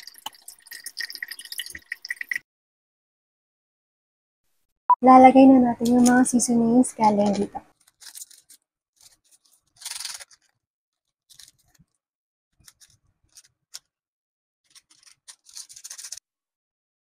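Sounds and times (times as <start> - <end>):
plastic packet crinkling: 7.1 - 12.0, 12.6 - 13.9, 14.7 - 16.2
plastic sachet tearing: 7.2 - 11.9, 12.6 - 13.9, 14.7 - 16.2.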